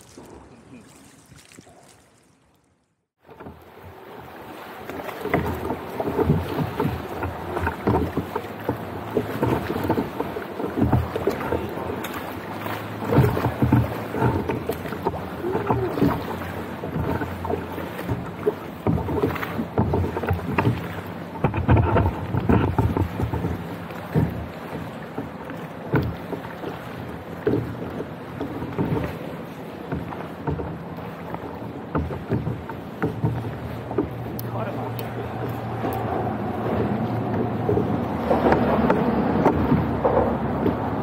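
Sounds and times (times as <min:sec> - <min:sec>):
water slapping against kayak hull: 0:00.0 - 0:41.0
wind buffeting microphone: 0:33.6 - 0:41.0.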